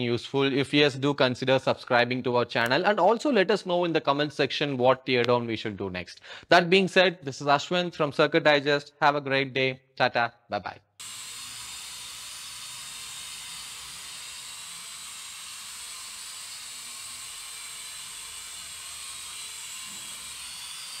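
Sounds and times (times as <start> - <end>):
toy quadcopter whirring: 11.0 - 21.0.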